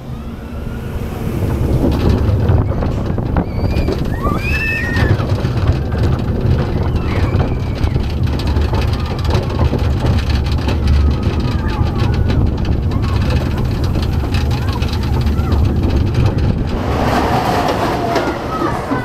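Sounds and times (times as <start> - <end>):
roller coaster wheels rumbling on track: 0.0 - 19.0
wind rushing over microphone: 0.0 - 19.0.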